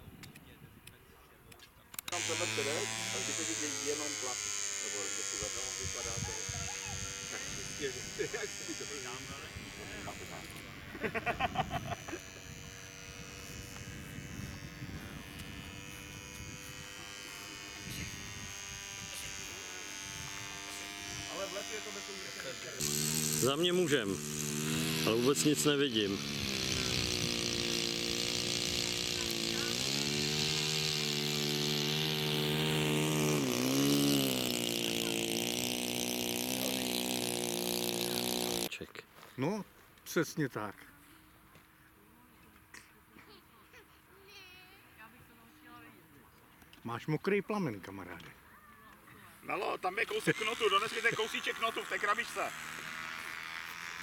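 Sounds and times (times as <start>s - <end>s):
model airplane motor buzzing: 1.9s - 38.7s, 49.5s - 54.0s
rapid pulses: 2.0s - 38.7s.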